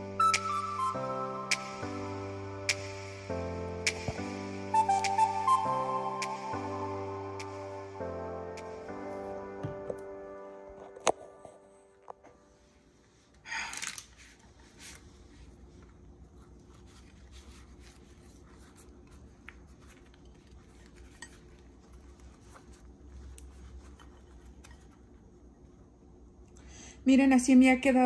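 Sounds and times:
tortilla rustling: 0:13.0 - 0:25.8.

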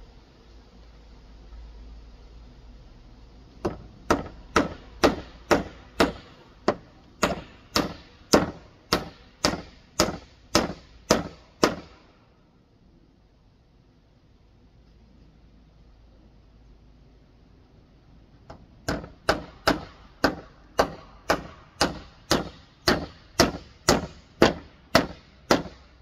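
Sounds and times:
hammer nailing boards: 0:03.6 - 0:12.0, 0:18.5 - 0:25.8.

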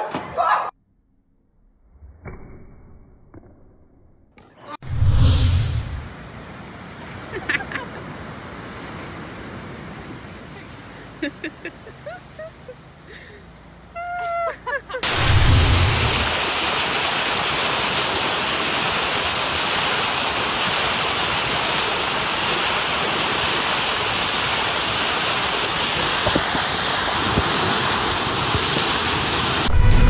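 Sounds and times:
water splashing off boat bow: 0:15.0 - 0:29.7.

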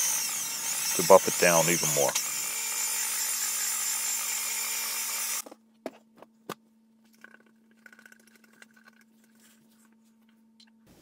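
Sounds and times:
rotary polisher whining: 0:00.0 - 0:05.5.

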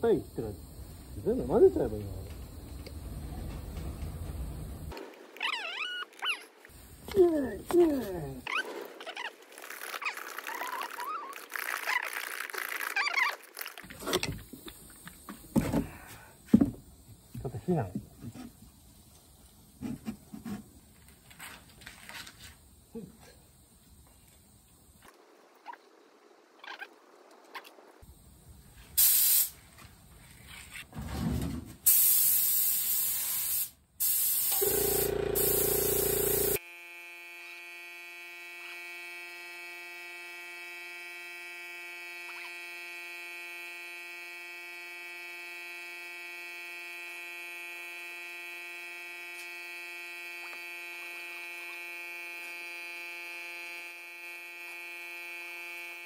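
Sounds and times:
spray gun hissing: 0:29.0 - 0:29.6, 0:31.9 - 0:36.6
electric buzz: 0:31.9 - 0:56.0.

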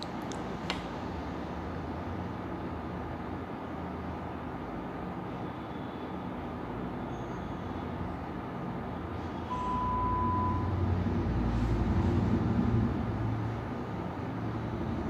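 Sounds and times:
high beep: 0:09.5 - 0:10.7
low vehicle rumble: 0:09.5 - 0:15.0.

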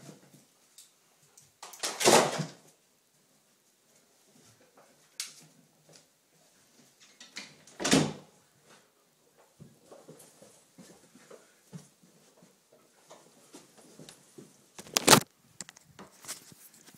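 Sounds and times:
faint knocks and rustles: 0:08.3 - 0:14.8.

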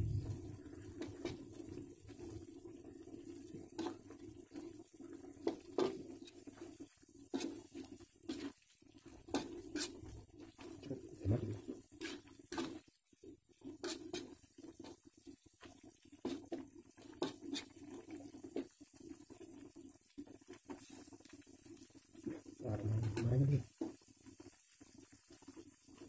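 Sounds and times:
metal spatula scraping a wok: 0:07.3 - 0:10.2, 0:11.6 - 0:12.8, 0:13.8 - 0:14.4, 0:17.0 - 0:17.8.

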